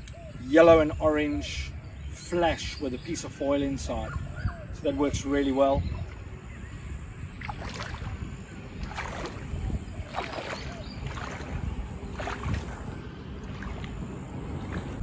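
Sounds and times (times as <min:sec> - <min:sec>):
wind rumble on microphone: 0:00.0 - 0:15.0
water sloshing and splashing: 0:05.6 - 0:15.0.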